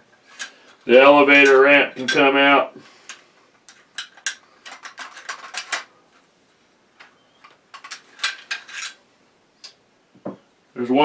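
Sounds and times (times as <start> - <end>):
shotgun parts clicking: 3.1 - 5.9, 7.0 - 9.0.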